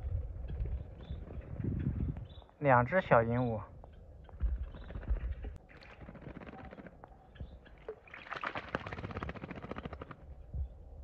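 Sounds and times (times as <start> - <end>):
wings flapping: 4.4 - 7.1, 8.2 - 10.3
bird splashing in water: 7.8 - 10.2.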